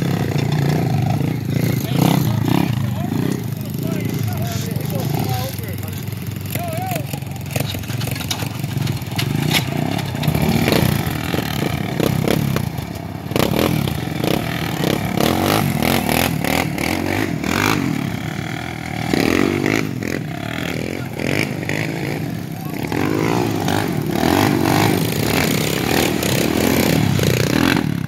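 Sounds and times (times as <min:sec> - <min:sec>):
atv engine revving: 0:00.0 - 0:28.0
gravel spraying and clattering: 0:00.1 - 0:16.0.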